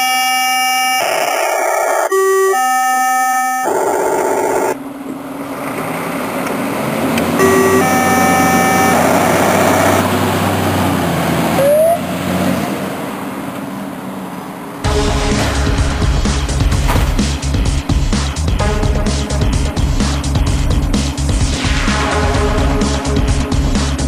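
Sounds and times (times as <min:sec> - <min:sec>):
electronic alarm tones: 0:00.0 - 0:04.8, 0:07.4 - 0:10.1, 0:11.6 - 0:12.0
diesel engine running: 0:04.7 - 0:24.0
short rising tone: 0:07.3 - 0:10.1.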